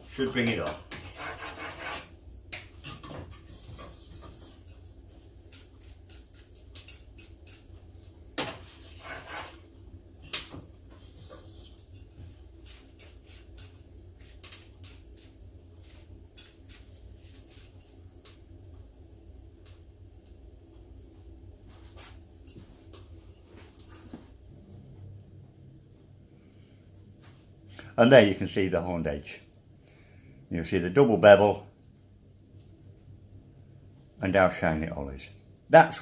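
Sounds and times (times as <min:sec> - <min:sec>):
metal rubbing strokes on plate: 0:00.0 - 0:02.2, 0:03.0 - 0:04.9, 0:08.6 - 0:09.7, 0:10.9 - 0:15.0
metal clicks and taps on plate: 0:04.6 - 0:07.7.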